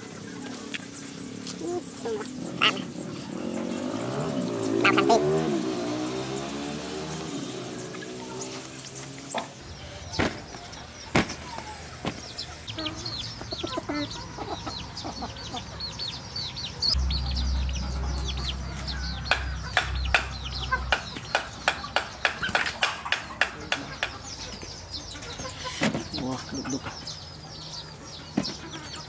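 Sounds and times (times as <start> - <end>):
chickens clucking: 0.0 - 29.0
small birds chirping: 0.0 - 29.0
low hum: 16.9 - 21.7.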